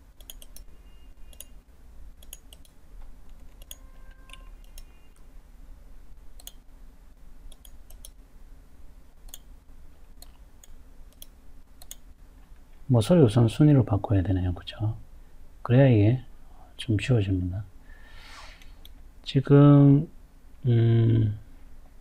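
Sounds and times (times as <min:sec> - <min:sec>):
low steady hum: 0:00.0 - 0:22.0
computer mouse clicking: 0:00.2 - 0:00.7, 0:01.3 - 0:01.6, 0:02.2 - 0:05.0, 0:06.4 - 0:06.6, 0:07.5 - 0:08.2, 0:09.2 - 0:09.5, 0:10.2 - 0:12.1.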